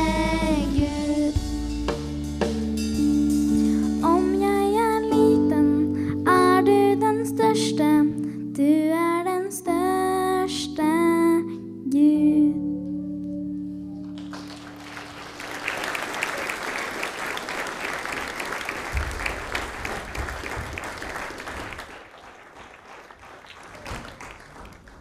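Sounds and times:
audience applauding: 0:14.0 - 0:25.0.

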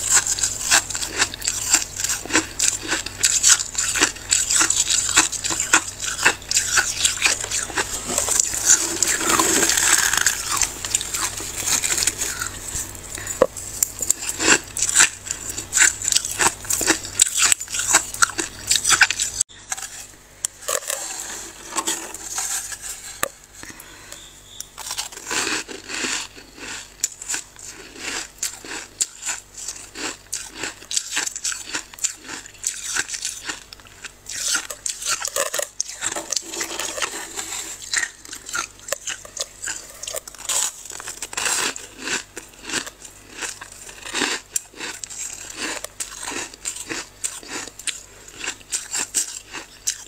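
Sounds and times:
freezer frost crunching: 0:00.0 - 0:50.0.

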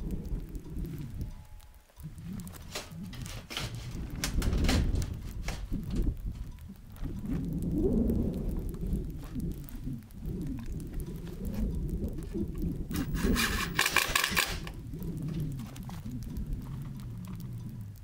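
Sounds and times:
sheet metal panel wobbling: 0:02.1 - 0:06.5, 0:08.7 - 0:17.2
cordless drill driving screw: 0:12.9 - 0:14.7.

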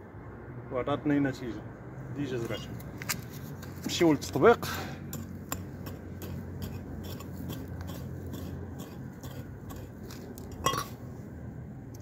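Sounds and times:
hand hoe chopping stony soil: 0:05.1 - 0:10.6.

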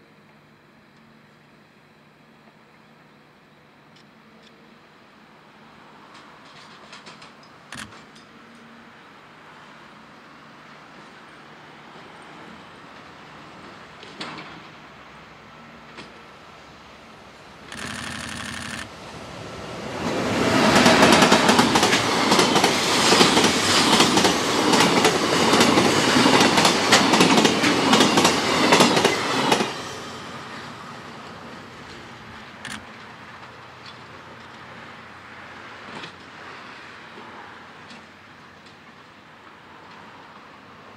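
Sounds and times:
freight train rumbling past: 0:18.7 - 0:40.9
wheels clacking over rail joints: 0:20.6 - 0:29.9.

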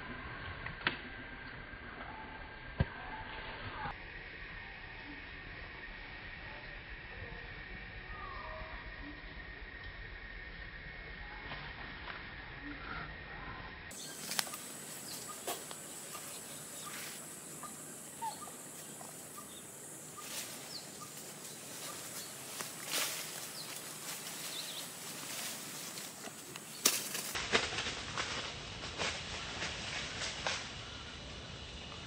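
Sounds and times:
faint bird chirps: 0:08.0 - 0:09.4, 0:12.5 - 0:25.9
monkeys climbing in tree: 0:13.9 - 0:30.6
leaves and branches rustling: 0:13.9 - 0:32.0.

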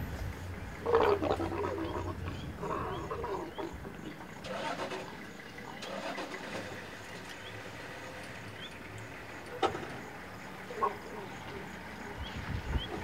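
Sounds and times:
vehicle engine idling: 0:00.0 - 0:13.0
leopard snarl: 0:00.8 - 0:06.8.

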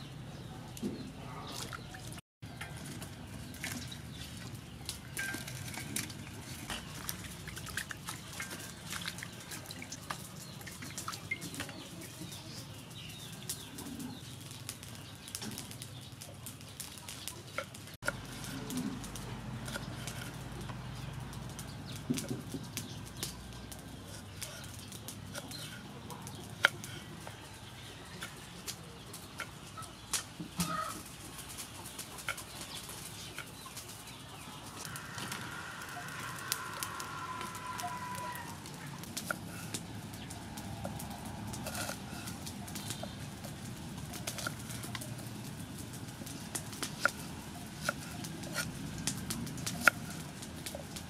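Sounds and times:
chicken calling: 0:34.4 - 0:39.8.

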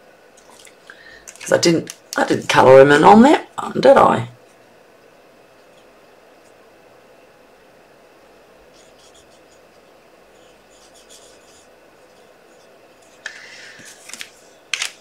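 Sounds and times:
small brush scratching on card: 0:08.7 - 0:09.6, 0:10.3 - 0:14.0.

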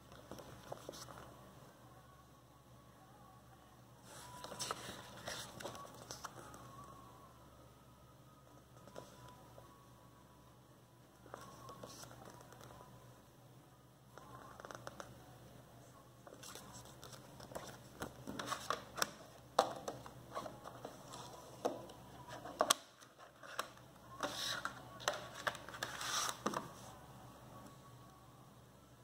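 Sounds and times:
paper rustling and scraping: 0:24.2 - 0:26.8.

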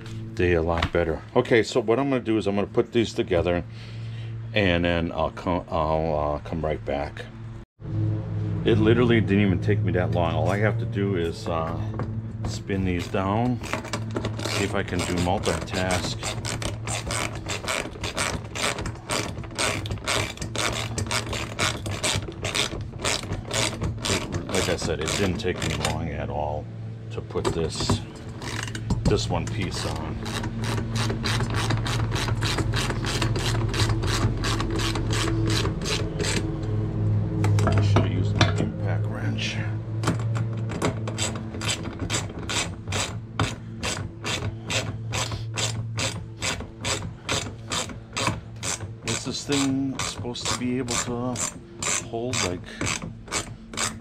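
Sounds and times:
steady low hum: 0:00.0 - 0:54.0
ratchet wrench clicking: 0:13.7 - 0:25.9, 0:41.1 - 0:54.0.

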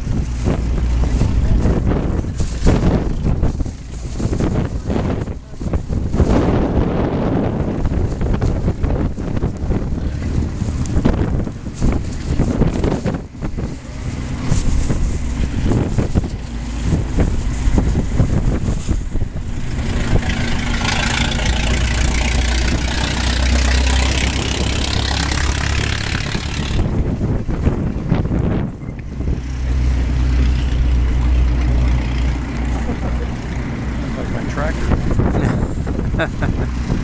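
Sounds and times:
rushing noise: 0:00.0 - 0:37.0
car engine driving past: 0:09.0 - 0:27.4.

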